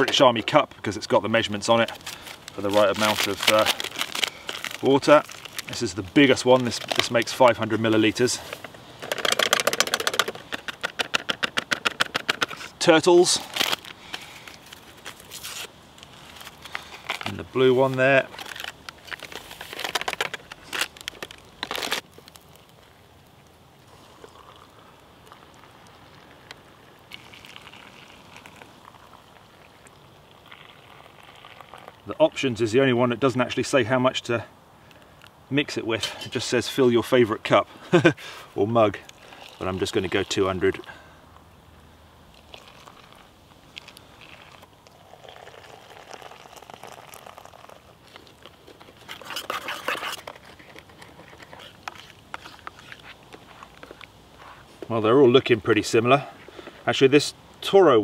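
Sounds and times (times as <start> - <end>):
hot water pouring into mugs: 23.8 - 32.1, 39.1 - 41.0, 42.4 - 48.5.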